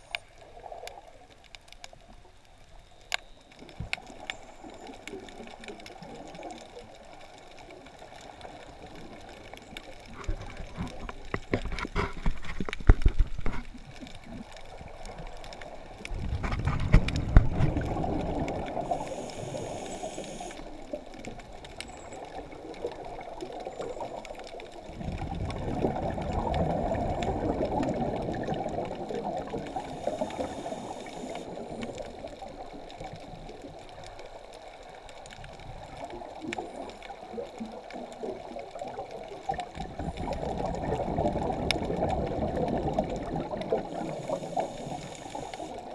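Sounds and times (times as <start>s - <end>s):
gurgling exhaled bubbles: 3.6s - 45.9s
regulator inhalation hiss: 18.9s - 20.8s, 29.8s - 31.6s, 43.9s - 45.8s.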